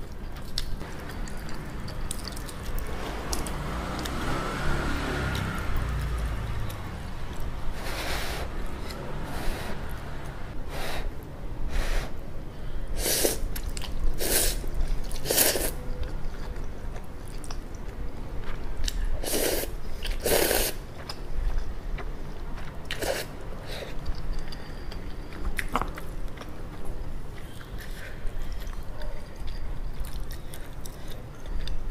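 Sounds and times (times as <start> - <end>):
chewing: 0.0 - 4.2, 13.5 - 31.9
noodle slurping: 14.1 - 15.8, 19.2 - 20.8.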